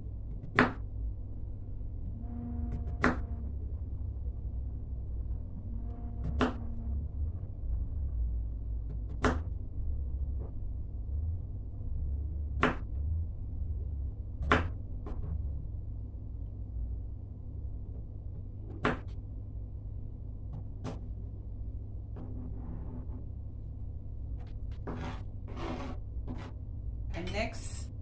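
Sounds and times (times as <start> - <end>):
steady low hum: 0.0 - 28.0.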